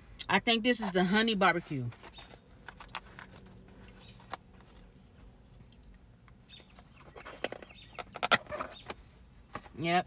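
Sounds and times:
plastic container clicks and crinkles: 0:02.1 - 0:04.5.

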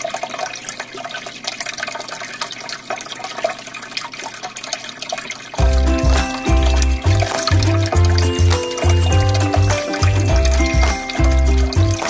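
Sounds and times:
aquarium air bubbles bursting: 0:05.6 - 0:12.0
background music: 0:05.6 - 0:12.0.

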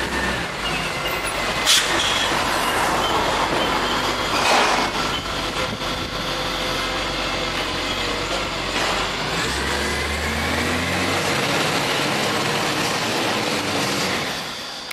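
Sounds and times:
diesel truck engine running: 0:00.0 - 0:14.9.

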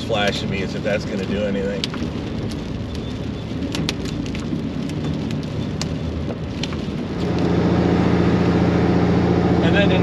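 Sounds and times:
rock salt ticking on truck: 0:00.0 - 0:07.5
tyre and road rumble: 0:00.0 - 0:10.0.

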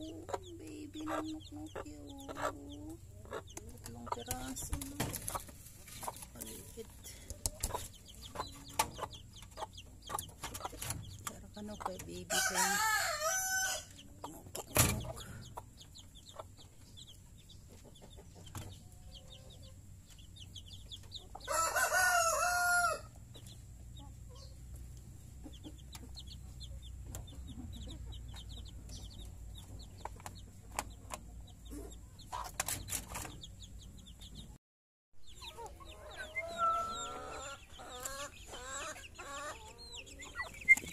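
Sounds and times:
chickens clucking: 0:00.0 - 0:34.6, 0:35.2 - 0:40.9
rooster crowing: 0:12.3 - 0:13.9, 0:21.5 - 0:23.2, 0:36.0 - 0:37.6.

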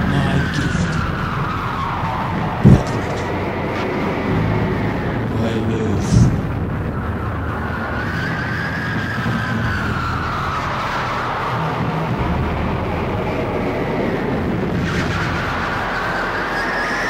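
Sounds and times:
rumbling droning soundtrack: 0:00.0 - 0:17.0.

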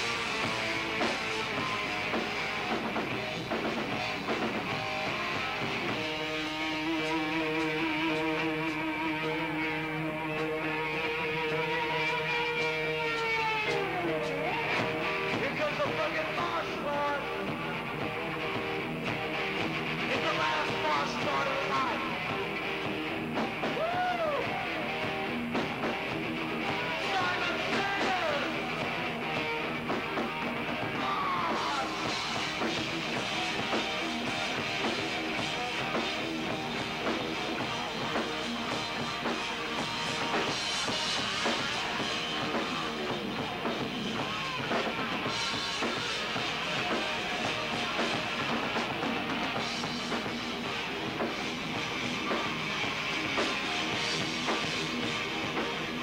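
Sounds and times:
live rock band playing: 0:00.0 - 0:56.0
person singing: 0:06.8 - 0:18.1, 0:20.1 - 0:22.4, 0:23.6 - 0:25.1, 0:26.6 - 0:29.2, 0:30.7 - 0:36.0.

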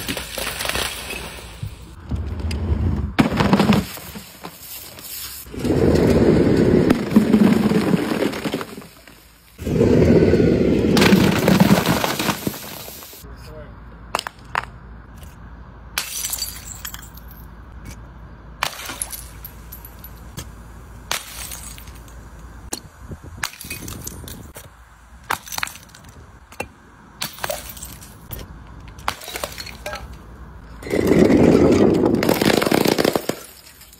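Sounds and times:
glass bottles shattering on concrete: 0:16.0 - 0:17.5, 0:18.6 - 0:20.4, 0:21.1 - 0:22.1, 0:23.5 - 0:24.5, 0:27.2 - 0:28.2, 0:29.1 - 0:30.2, 0:31.9 - 0:33.9.

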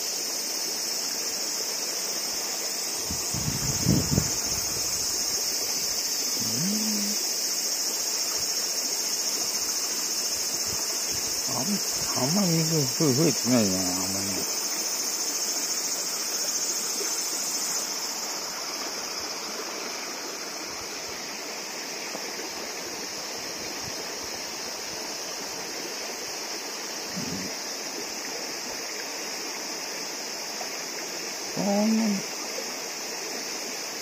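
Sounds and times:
high-pitched insect drone: 0:00.0 - 0:34.0
river water rushing: 0:00.8 - 0:06.4, 0:07.1 - 0:31.5
short voice-like sound: 0:06.4 - 0:07.2.

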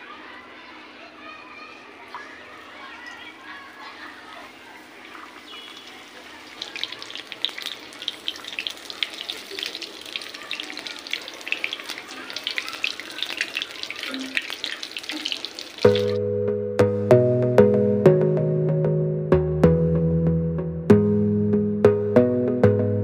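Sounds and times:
food deep-frying in oil: 0:04.4 - 0:16.2
oil crackling and spitting: 0:04.4 - 0:16.2.

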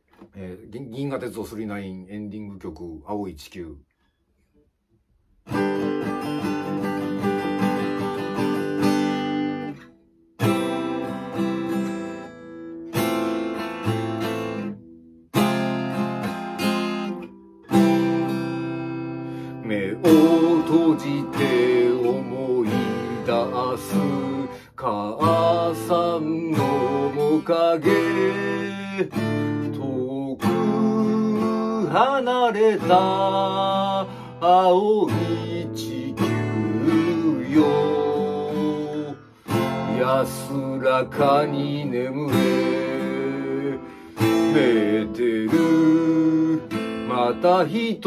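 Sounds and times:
acoustic guitar strummed and picked: 0:05.2 - 0:48.0
man singing: 0:19.5 - 0:48.0.

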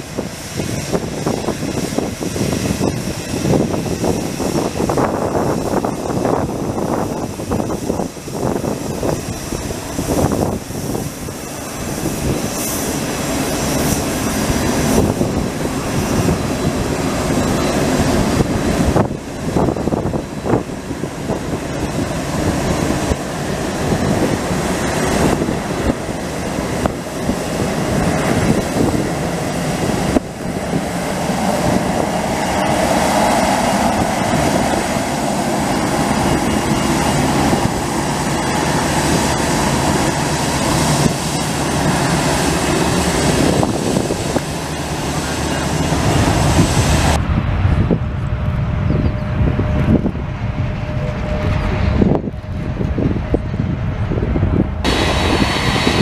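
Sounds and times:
jet engines at taxi power: 0:00.0 - 0:56.0.

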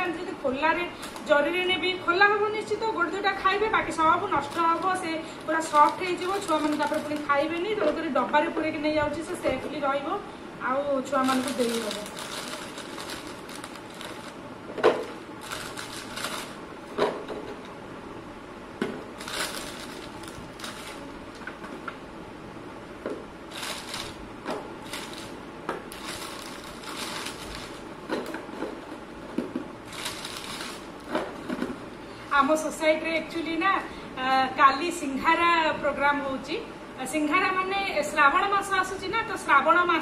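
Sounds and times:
plastic packet crinkling: 0:04.2 - 0:07.8, 0:11.2 - 0:14.4, 0:15.0 - 0:16.6, 0:19.2 - 0:21.6, 0:23.5 - 0:24.2, 0:24.8 - 0:27.9, 0:29.9 - 0:31.2.

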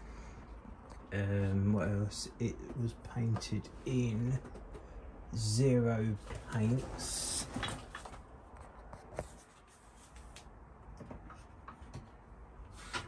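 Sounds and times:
faint rustling and handling: 0:06.1 - 0:13.0.

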